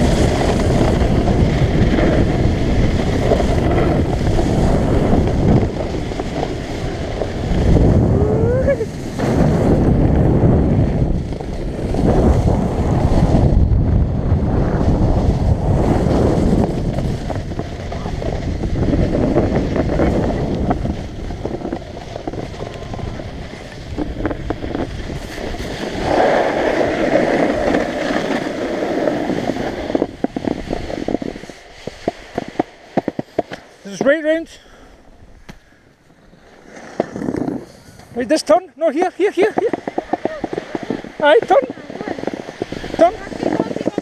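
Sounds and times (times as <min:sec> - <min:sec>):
wind rushing over microphone: 0:00.0 - 0:33.4, 0:36.2 - 0:44.0
skis sliding on snow: 0:00.0 - 0:44.0.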